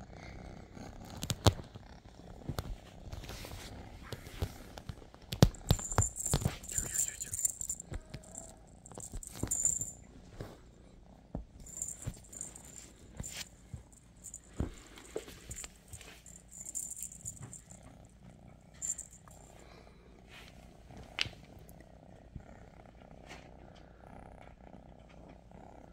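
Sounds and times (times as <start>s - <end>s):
cat purring: 0.0s - 25.9s
beads rattling: 5.5s - 10.0s, 11.6s - 17.8s, 18.8s - 19.2s
paws thudding on cushions: 11.3s - 17.8s
feathers rustling: 11.6s - 17.7s.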